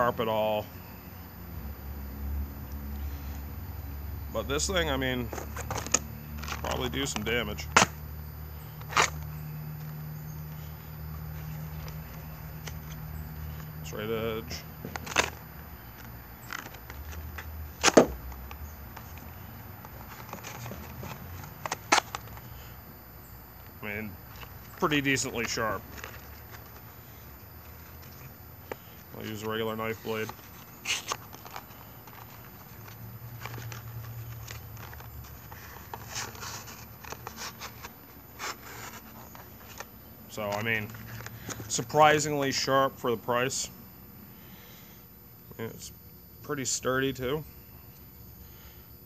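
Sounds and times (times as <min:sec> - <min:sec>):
light paper scratches: 0:27.7 - 0:39.9.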